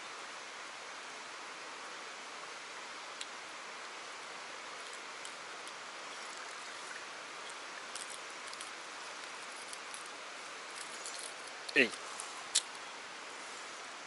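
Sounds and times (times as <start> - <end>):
river water rushing: 3.4 - 14.0.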